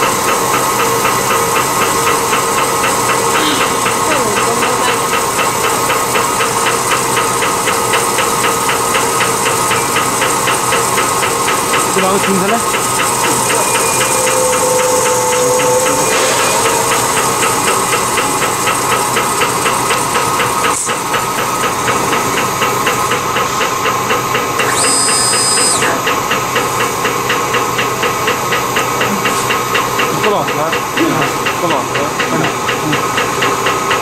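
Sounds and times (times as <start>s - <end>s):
high whine: 0.0s - 7.1s, 9.3s - 23.4s
rapid mechanical ticking: 0.0s - 34.0s
slitting machine hiss and hum: 0.0s - 34.0s.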